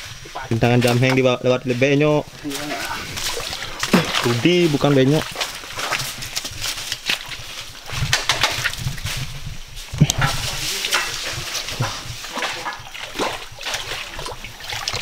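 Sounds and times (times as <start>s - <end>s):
leaves and twigs crackling underfoot: 0.0s - 15.0s
splashing through stream: 2.4s - 9.1s, 10.1s - 15.0s.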